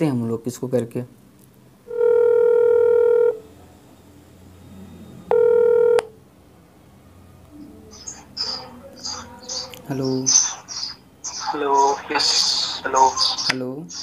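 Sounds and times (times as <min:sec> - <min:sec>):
phone ringback tone: 0:01.9 - 0:03.4, 0:05.2 - 0:06.2.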